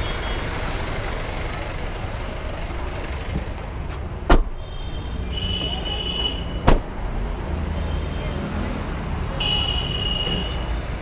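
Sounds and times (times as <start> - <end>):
background traffic noise: 0.0 - 11.0
car doors slamming: 4.2 - 4.6, 6.6 - 7.0.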